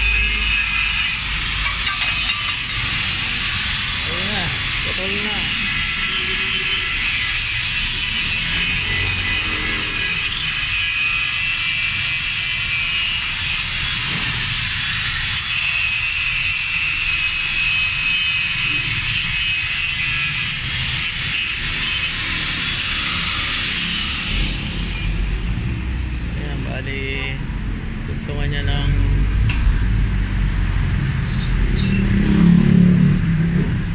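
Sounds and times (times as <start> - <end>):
angle grinder grinding metal: 0.0 - 25.4.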